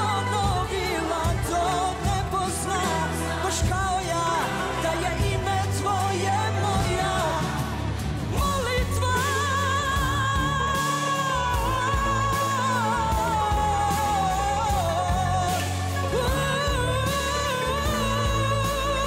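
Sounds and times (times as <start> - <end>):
pop-rock band playing: 0.0 - 19.0.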